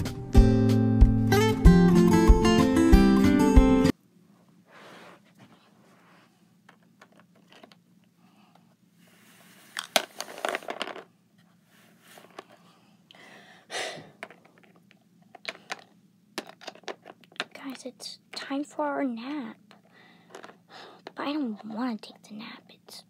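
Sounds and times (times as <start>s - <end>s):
plastic toy figures tapping and scraping: 6.6s - 7.8s, 9.7s - 11.1s, 12.1s - 12.6s, 14.2s - 18.8s, 19.7s - 22.2s.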